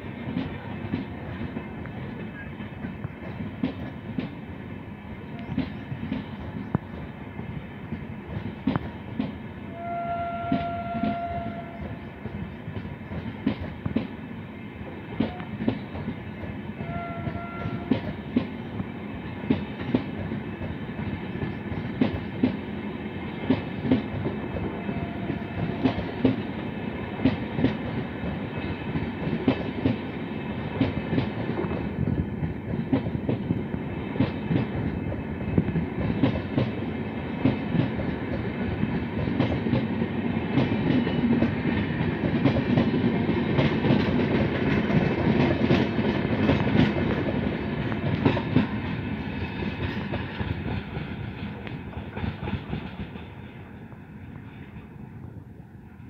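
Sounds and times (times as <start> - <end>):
train wheels clickety-clack: 0.0 - 55.4
distant train horn: 9.6 - 12.4, 14.6 - 15.8, 16.7 - 18.4, 24.6 - 26.5.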